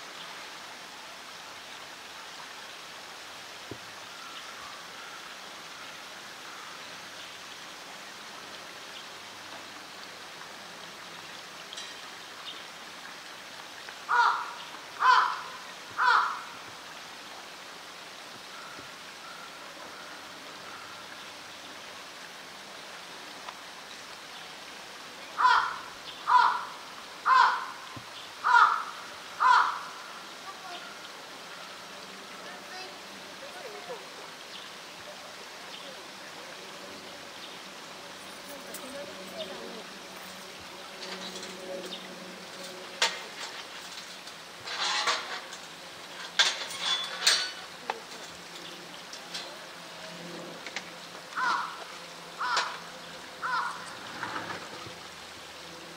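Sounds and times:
steady background hiss: 0:00.0 - 0:55.9
crow cawing: 0:14.1 - 0:16.6, 0:25.4 - 0:30.2, 0:51.4 - 0:54.0.

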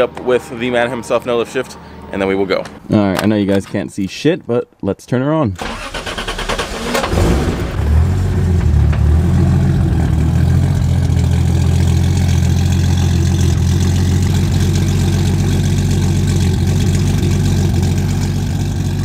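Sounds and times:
car engine idling: 0:05.6 - 0:19.0.

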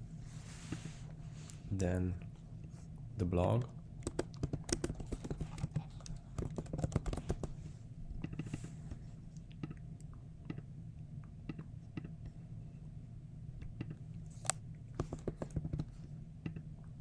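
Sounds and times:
keyboard key clicks: 0:04.0 - 0:05.7.

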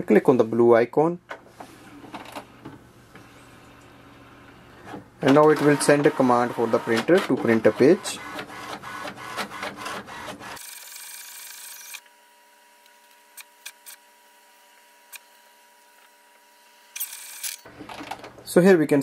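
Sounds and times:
faint printer hum: 0:01.3 - 0:18.4
printer mechanical clicks: 0:04.9 - 0:10.6.

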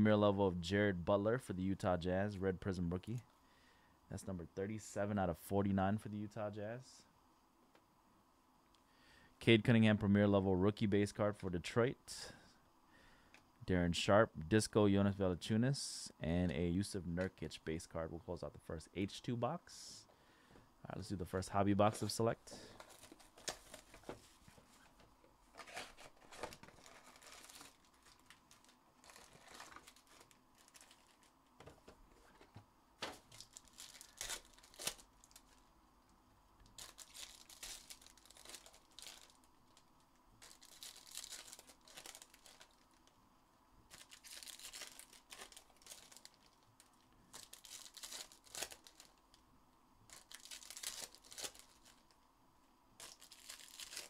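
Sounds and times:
card pack wrappers tearing: 0:21.9 - 0:24.1, 0:25.5 - 0:31.3, 0:33.0 - 0:35.6, 0:36.6 - 0:43.1, 0:43.9 - 0:49.2, 0:50.1 - 0:52.1, 0:53.0 - 0:54.0.

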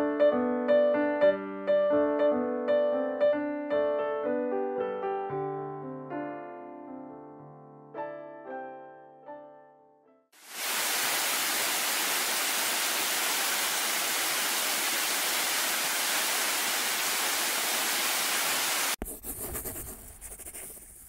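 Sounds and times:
waterfall rushing: 0:10.4 - 0:19.0.

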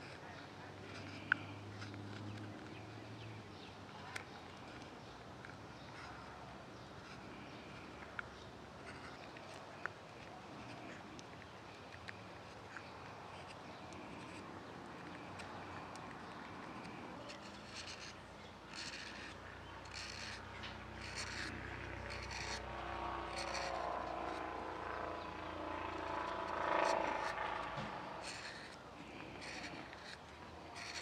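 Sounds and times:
knife scraping wood shavings: 0:15.0 - 0:24.5, 0:28.2 - 0:31.0.

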